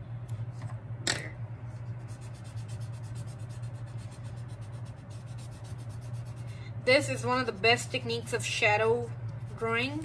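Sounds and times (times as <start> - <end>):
steady low hum: 0.0 - 10.0
cotton bud rubbing on paper: 1.7 - 8.2, 9.3 - 10.0.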